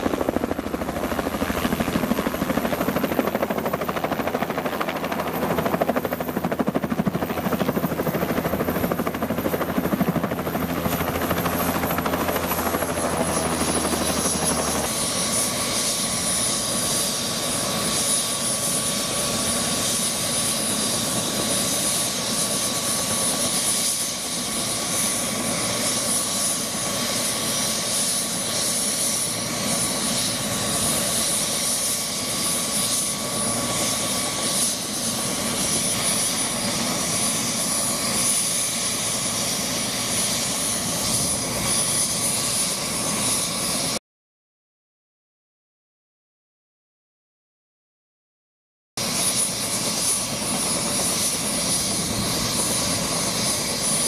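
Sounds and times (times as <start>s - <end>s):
helicopter turbine idling: 0.0s - 44.0s, 49.0s - 54.0s.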